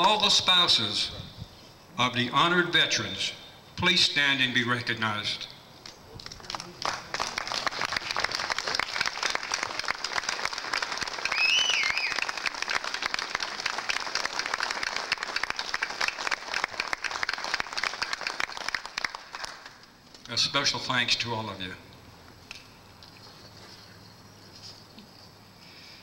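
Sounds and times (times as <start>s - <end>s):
crowd applauding: 6.1s - 19.9s
wavering whistle: 11.2s - 12.4s.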